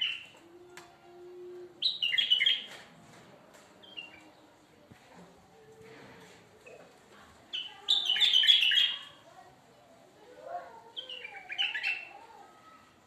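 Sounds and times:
bird whistled song: 1.8s - 2.7s.

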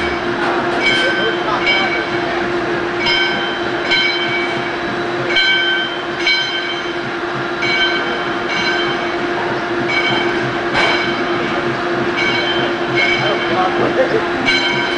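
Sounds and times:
high metallic ringing: 3.0s - 9.2s, 9.8s - 14.9s.

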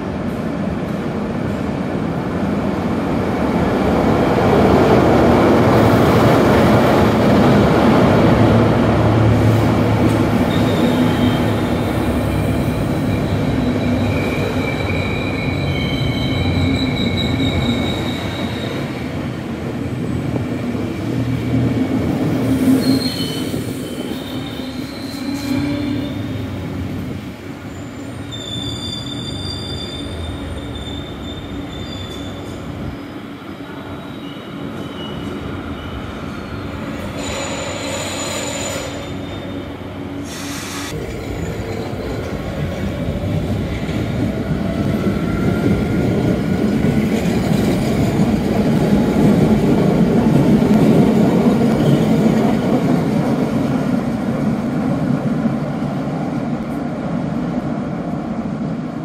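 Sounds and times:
train passing and slowing: 0.0s - 59.0s
wheel and brake squeals: 10.5s - 11.7s, 13.0s - 18.9s, 22.6s - 26.4s, 27.7s - 32.7s, 34.0s - 41.0s.

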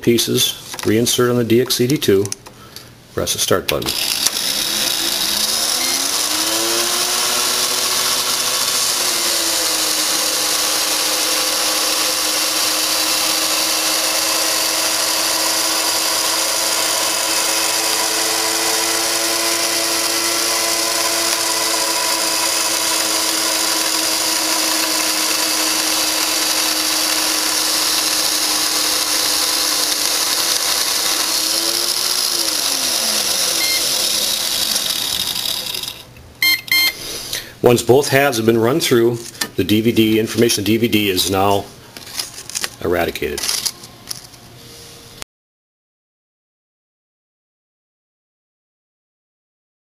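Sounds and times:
disc destruction device motor whine: 3.9s - 36.0s.

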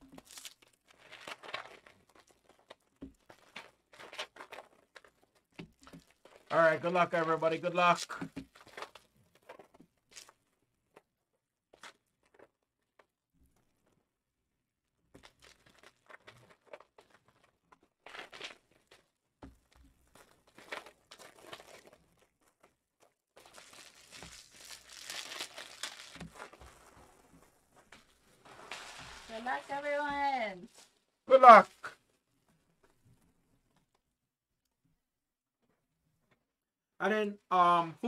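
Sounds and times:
foil wrappers crinkling: 0.0s - 10.4s, 15.2s - 19.2s, 20.2s - 31.1s.

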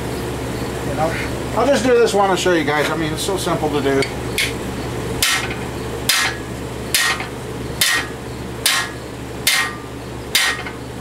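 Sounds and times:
ringing hammer strikes on metal: 5.2s - 10.8s.

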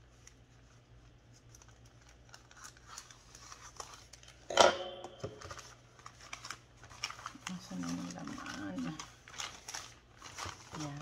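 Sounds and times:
plastic bag rustling: 5.2s - 11.0s.

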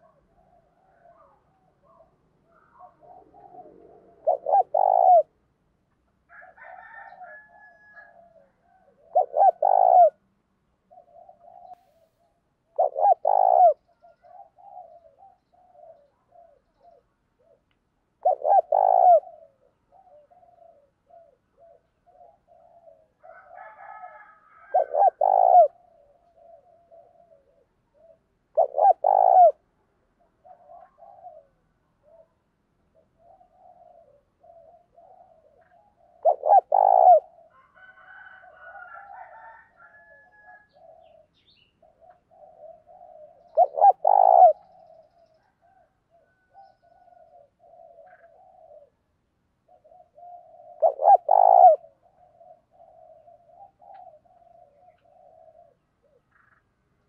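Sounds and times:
dove cooing: 0.0s - 5.5s, 6.3s - 56.8s.

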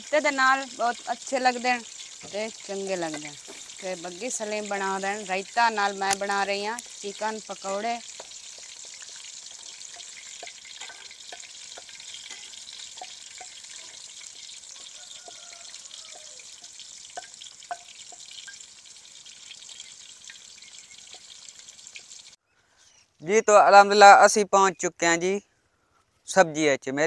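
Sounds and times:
food sizzling in oil: 0.0s - 22.4s.

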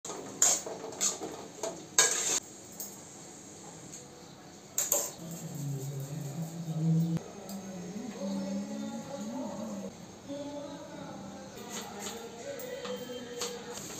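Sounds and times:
metal pans and lids clattering: 0.0s - 2.9s.

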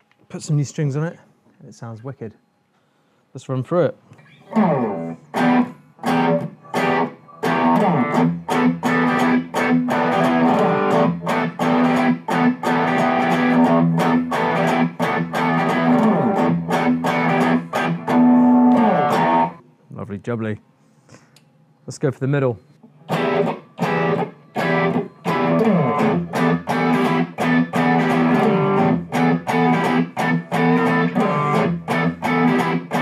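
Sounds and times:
electric guitar through amp: 4.2s - 19.6s, 23.1s - 33.0s.

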